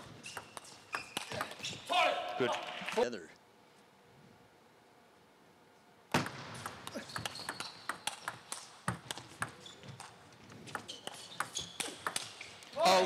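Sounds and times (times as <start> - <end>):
ping pong ball clicking: 6.6 - 9.6, 10.7 - 12.3.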